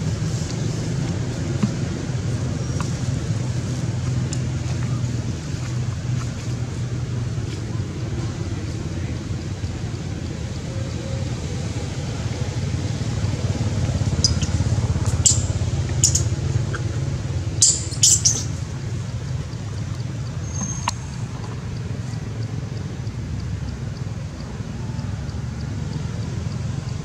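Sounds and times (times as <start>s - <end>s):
wind rumble on microphone: 0.0s - 20.3s
high-pitched chirps: 17.5s - 18.6s.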